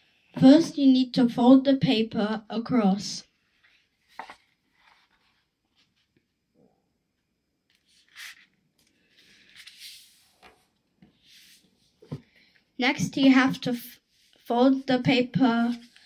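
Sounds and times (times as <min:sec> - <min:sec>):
paper rustling and rubbing: 0:07.7 - 0:11.9.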